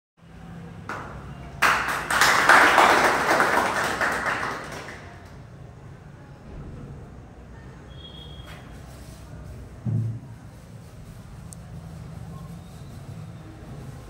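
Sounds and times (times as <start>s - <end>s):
small group applauding: 0.8s - 5.5s.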